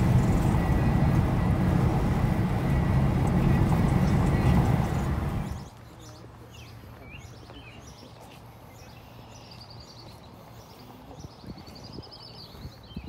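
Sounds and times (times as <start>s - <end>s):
car road noise: 0.0s - 5.7s
small birds chirping: 0.0s - 13.0s.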